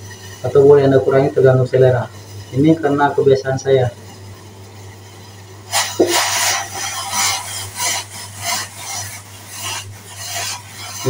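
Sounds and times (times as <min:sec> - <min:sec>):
metal spoon scraping saucepan: 0:05.1 - 0:11.0.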